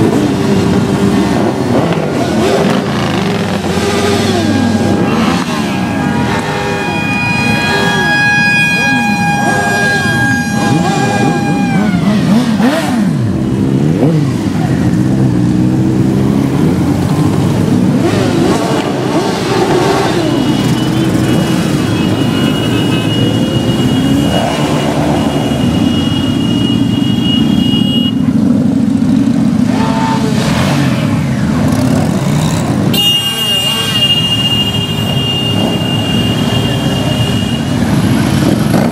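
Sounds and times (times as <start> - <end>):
motorcycles riding past: 0.0 - 33.0, 33.6 - 38.9
steady high tone: 3.8 - 12.5.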